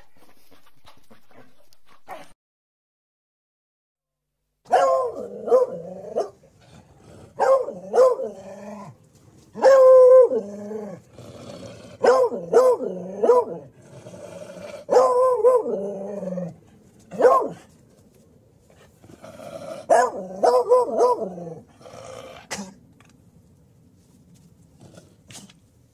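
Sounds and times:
dog barking: 0:04.7 - 0:06.4, 0:07.4 - 0:08.4, 0:09.6 - 0:10.4, 0:12.0 - 0:13.7, 0:14.9 - 0:15.8, 0:17.1 - 0:17.7, 0:19.9 - 0:21.5.

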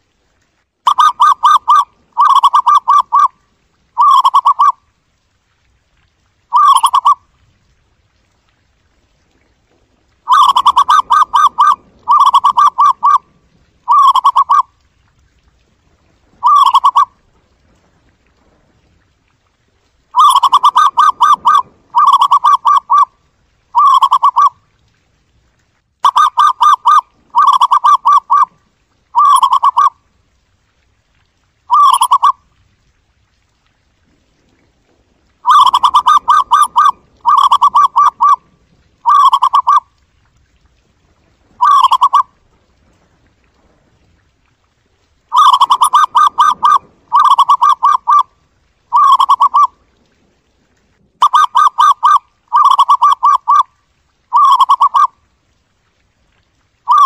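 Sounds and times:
dove trilled cooing: 0:00.9 - 0:03.3, 0:03.9 - 0:04.8, 0:06.5 - 0:07.2, 0:10.3 - 0:13.2, 0:13.8 - 0:14.7, 0:16.4 - 0:17.1, 0:20.2 - 0:23.1, 0:23.8 - 0:24.6, 0:26.0 - 0:28.5, 0:29.2 - 0:29.9, 0:31.7 - 0:32.4, 0:35.4 - 0:38.4, 0:39.0 - 0:39.8, 0:41.6 - 0:42.3, 0:45.3 - 0:48.3, 0:48.9 - 0:49.8, 0:51.2 - 0:53.6, 0:54.3 - 0:55.1.

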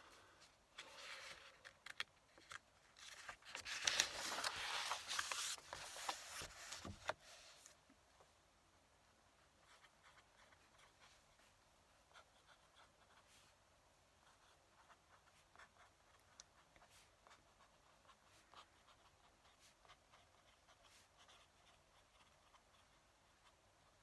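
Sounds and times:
fountain pen scratching on paper: 0:12.1 - 0:13.5, 0:14.2 - 0:24.0.

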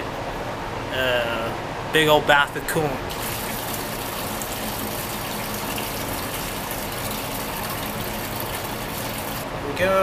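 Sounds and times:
coolant gushing into funnel: 0:03.1 - 0:09.4.

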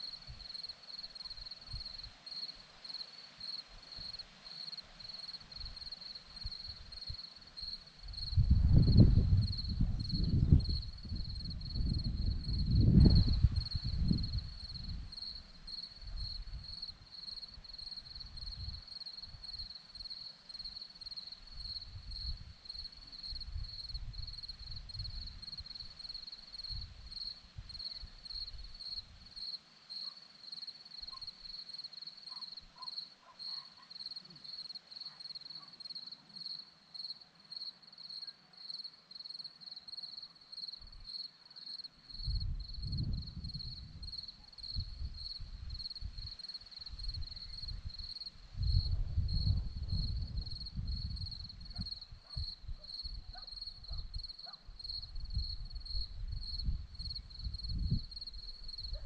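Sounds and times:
crickets chirping: 0:00.0 - 0:59.0
wind rumbling on microphone: 0:05.5 - 0:19.7, 0:21.5 - 0:29.3, 0:42.2 - 0:59.0.

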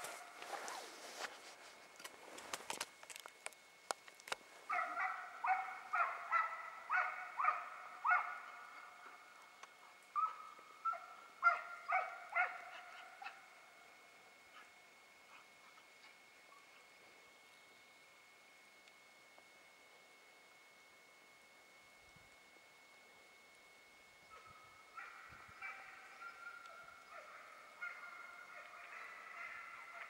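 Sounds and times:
hound baying: 0:04.7 - 0:09.2, 0:10.2 - 0:13.6, 0:24.3 - 0:30.0.

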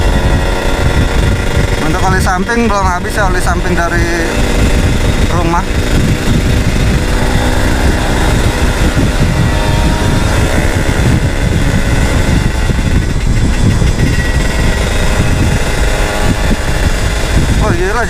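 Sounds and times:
two-stroke motorcycle engine running: 0:00.0 - 0:18.0
wind rumble on microphone: 0:00.0 - 0:18.0.

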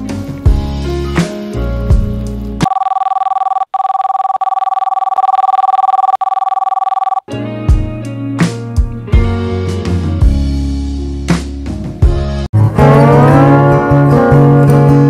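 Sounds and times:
electronic telephone ring: 0:02.6 - 0:07.3
background music: 0:07.3 - 0:15.0.

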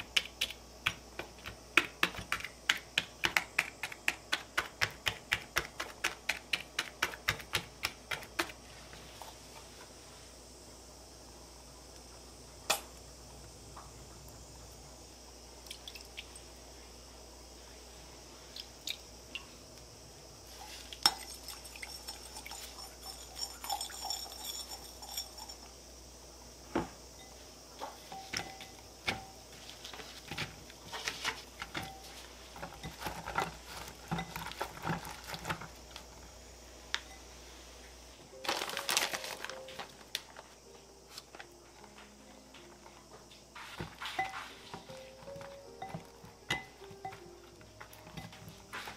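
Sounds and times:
clinks against a glass bowl: 0:21.0 - 0:25.7.

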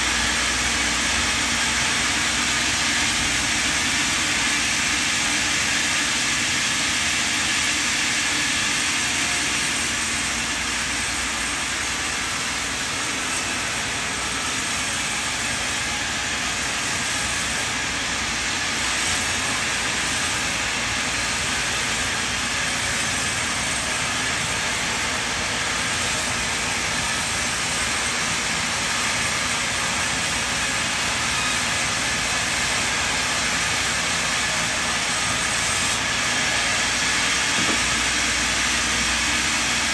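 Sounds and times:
band saw ripping timber: 0:00.0 - 0:39.9.

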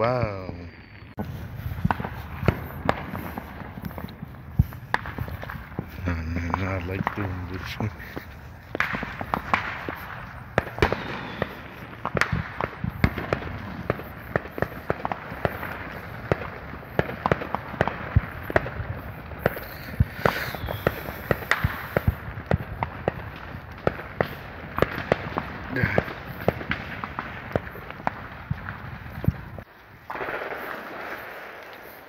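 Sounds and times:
fireworks popping and banging: 0:00.0 - 0:32.0.

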